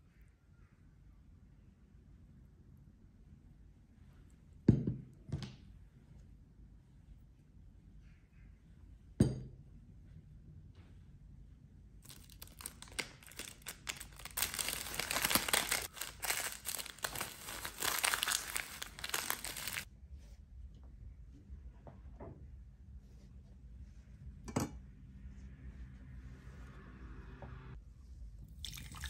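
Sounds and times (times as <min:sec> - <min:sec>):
cling film crinkling: 0:12.0 - 0:19.9.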